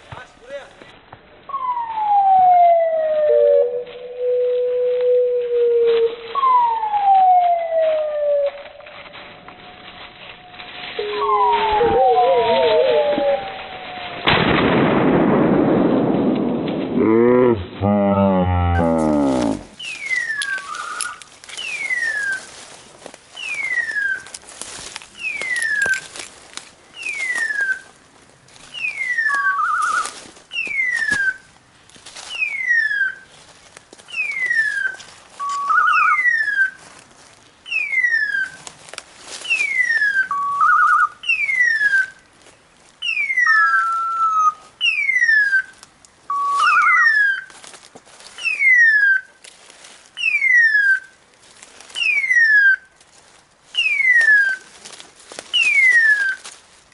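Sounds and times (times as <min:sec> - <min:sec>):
short rising beep: 0:10.4 - 0:12.8
falling electronic screech: 0:10.8 - 0:14.3.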